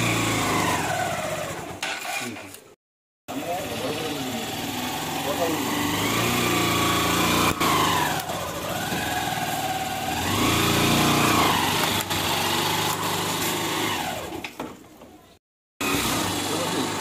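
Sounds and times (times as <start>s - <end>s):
motorcycle engine revving: 0.0s - 2.6s, 3.3s - 14.5s, 15.8s - 17.0s.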